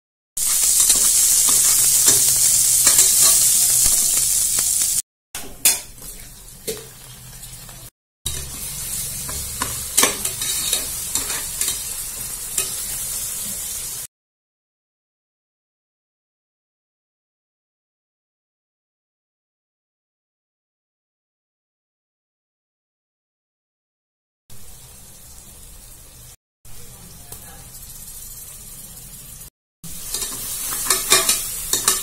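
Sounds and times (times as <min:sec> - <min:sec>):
metal spatula scraping a pan: 0:00.4 - 0:04.7, 0:08.3 - 0:13.9, 0:29.9 - 0:32.0
onions sizzling in hot oil: 0:00.4 - 0:05.0, 0:05.6 - 0:14.1, 0:24.6 - 0:32.0.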